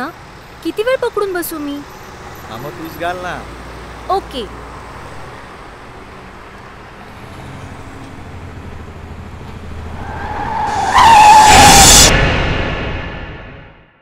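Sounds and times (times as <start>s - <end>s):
road traffic rumble: 0.0s - 12.5s
tyre screech: 10.0s - 12.2s.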